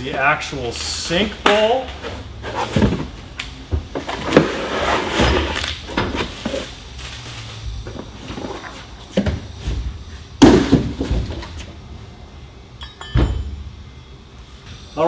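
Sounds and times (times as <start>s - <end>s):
plastic and bubble wrap rustling: 4.1s - 9.8s.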